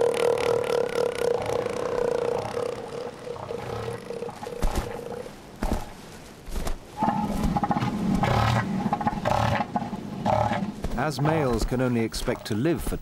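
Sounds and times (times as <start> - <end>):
elephant seals calling: 0.0 - 5.9
pulsed rhythmic seal call: 0.0 - 5.9, 7.0 - 10.8.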